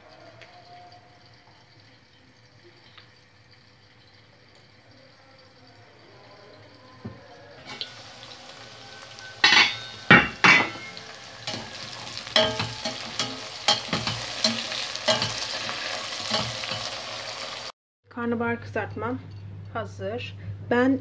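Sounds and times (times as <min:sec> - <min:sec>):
vegetables sizzling in oil: 0:07.5 - 0:17.7.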